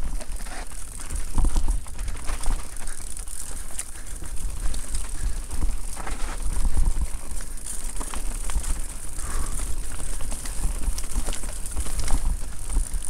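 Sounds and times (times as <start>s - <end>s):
bike rattling clicks and knocks: 0.0s - 13.0s
bike riding rumble with hiss: 0.0s - 13.0s.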